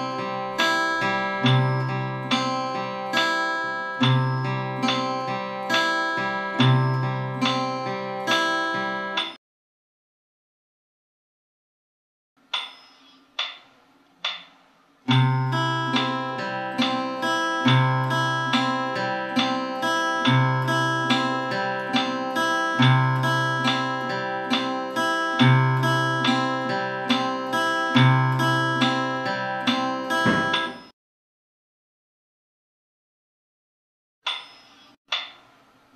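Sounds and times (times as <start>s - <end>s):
fingerpicked acoustic guitar: 0.0s - 9.3s, 15.1s - 30.8s
short knocks: 30.2s - 30.9s.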